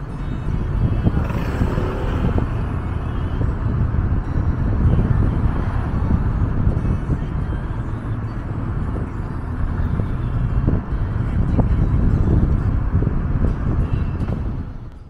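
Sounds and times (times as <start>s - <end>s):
low rumble of road traffic: 0.0s - 15.0s.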